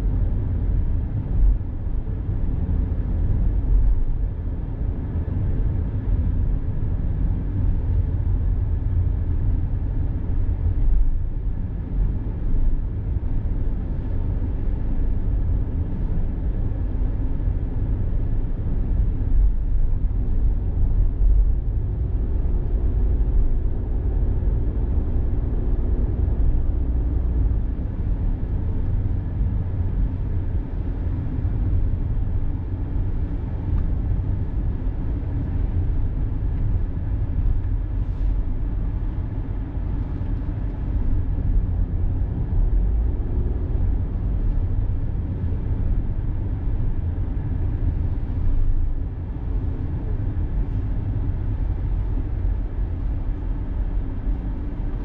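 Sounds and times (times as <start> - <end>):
car road and engine rumble: 0.0 - 55.0.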